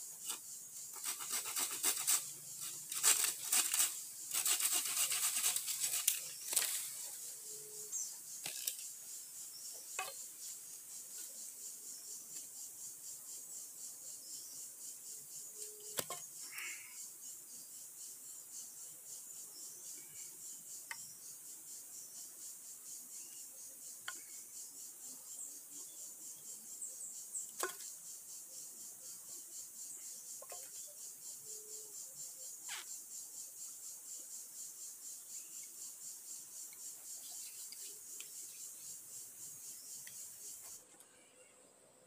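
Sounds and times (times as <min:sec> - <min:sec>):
insect chorus: 0:00.0 - 0:42.0
bamboo poles knocking together: 0:16.0 - 0:16.2, 0:27.6 - 0:27.9.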